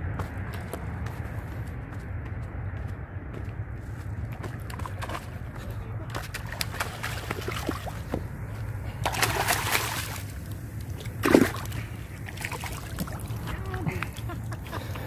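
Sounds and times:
steady low rumble: 0.0 - 15.0
water splashing and sloshing: 4.3 - 15.0.

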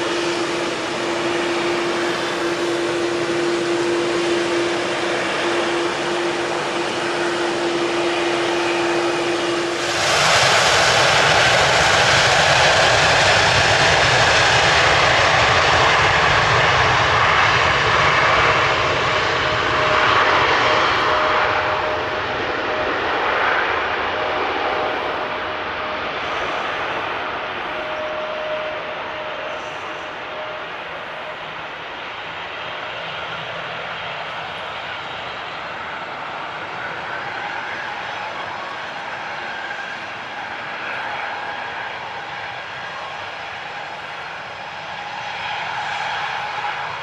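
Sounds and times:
jet engine roar: 0.0 - 47.0.

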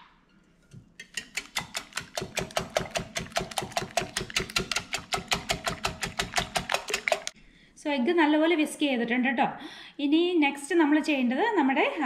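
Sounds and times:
whisk clicking against glass bowl: 1.0 - 7.3.

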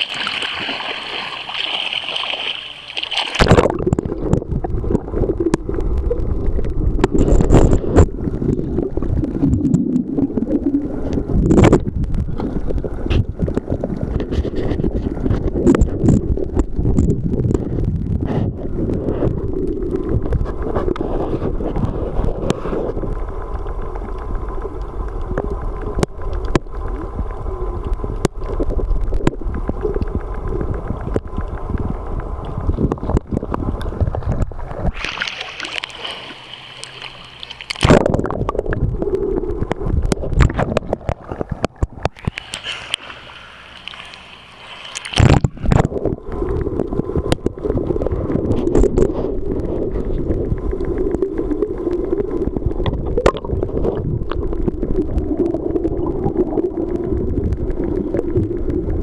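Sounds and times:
small underwater clicks: 0.0 - 59.0
underwater gurgling and rumble: 0.0 - 59.0
water splashes: 0.0 - 59.0
hiss above water: 34.8 - 37.9, 42.0 - 52.5.

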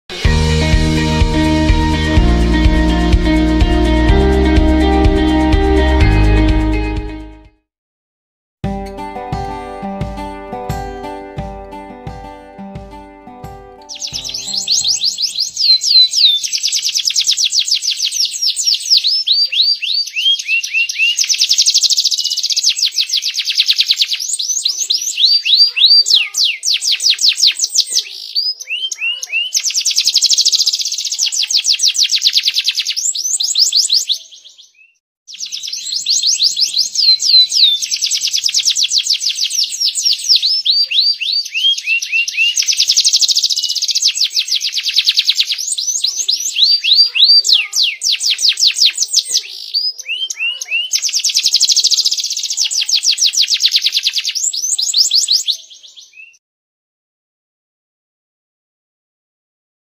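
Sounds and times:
canary singing trills: 13.9 - 56.4.

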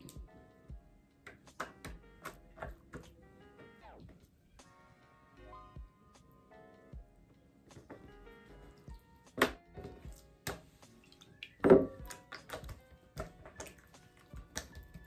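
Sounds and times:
quiet background music: 0.0 - 15.0
dough slapping on wooden table: 1.3 - 3.2, 9.3 - 15.0.

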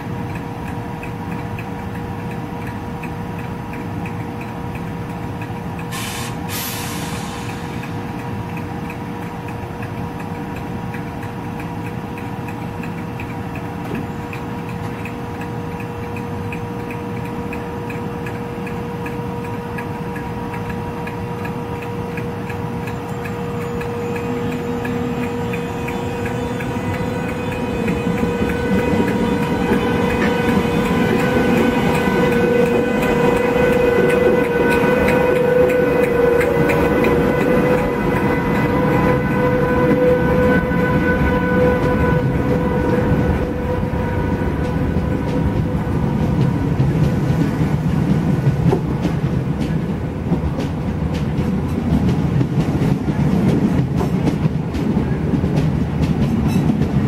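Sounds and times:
electric locomotive humming: 0.0 - 57.0
train coaches rolling: 0.0 - 57.0
air hiss: 5.9 - 8.1.

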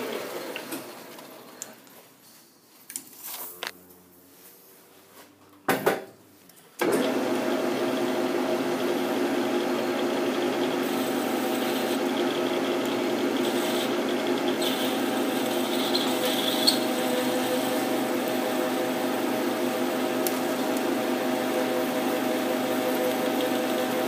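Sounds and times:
metal lathe whining: 6.9 - 24.0.

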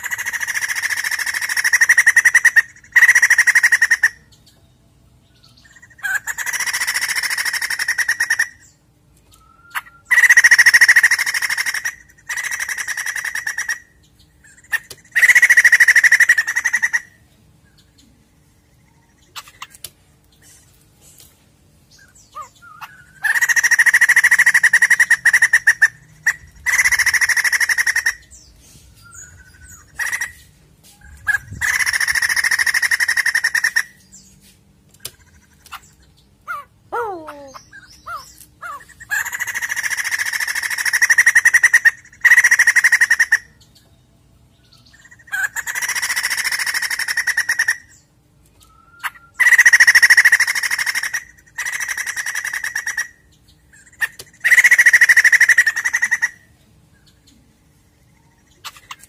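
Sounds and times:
bird harsh rapid chattering: 0.0 - 4.2, 5.7 - 8.7, 9.7 - 17.2, 22.3 - 28.5, 29.2 - 34.1, 35.0 - 43.5, 45.0 - 48.0, 49.0 - 56.5.

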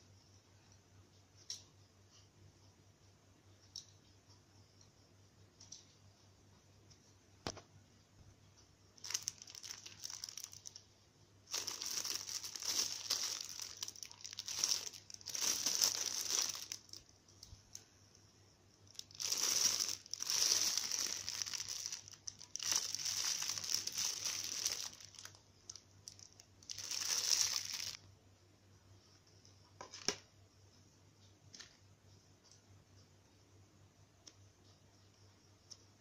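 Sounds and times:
plastic packaging bag crinkling: 9.0 - 10.9, 11.5 - 17.8, 18.9 - 28.0.

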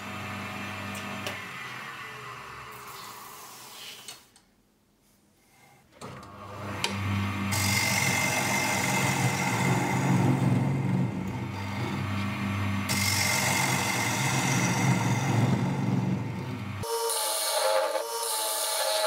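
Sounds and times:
lathe motor humming: 6.3 - 19.0
turning tool scraping wood: 11.3 - 19.0.

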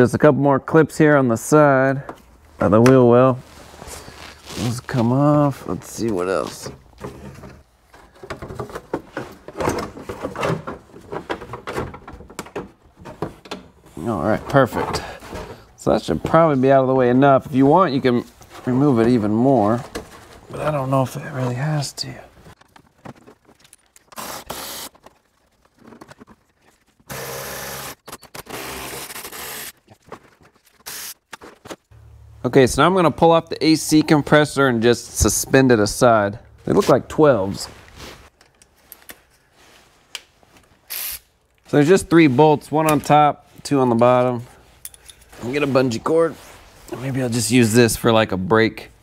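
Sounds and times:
plastic scrapes knocks and rattles: 6.6 - 13.6.

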